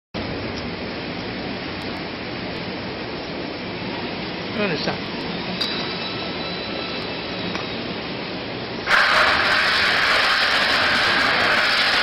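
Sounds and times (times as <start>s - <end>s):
rotating coating pan machine noise: 4.5s - 12.0s.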